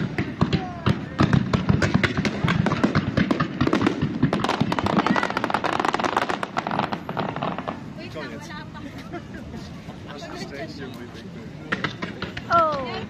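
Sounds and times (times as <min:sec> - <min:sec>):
fireworks crackling: 0:00.0 - 0:13.0.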